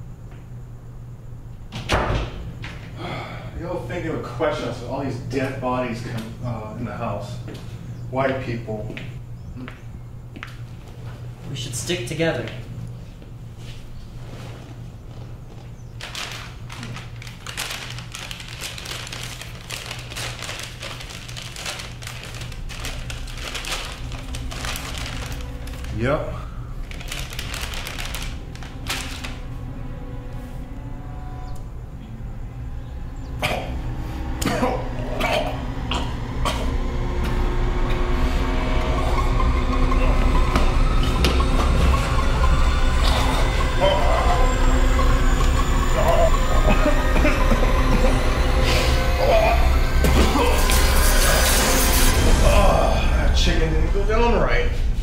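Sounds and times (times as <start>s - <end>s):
steady low hum: 0.0s - 55.0s
deep rumble: 14.8s - 55.0s
bag crinkling and rustling: 15.1s - 26.1s, 26.7s - 29.6s.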